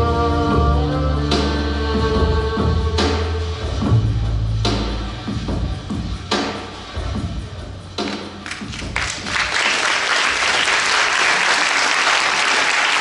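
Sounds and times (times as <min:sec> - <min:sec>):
dance music: 0:05.2 - 0:09.6
audience applause: 0:08.4 - 0:13.0.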